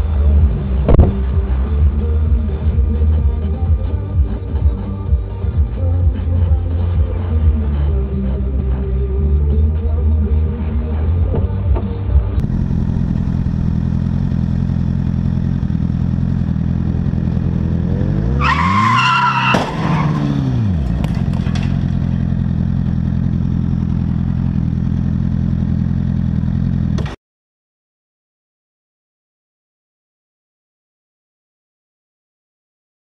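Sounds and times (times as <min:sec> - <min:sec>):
motorcycle engine drone: 0:00.0 - 0:27.2
sharp knock: 0:00.9 - 0:01.2
tyres squealing: 0:18.3 - 0:20.5.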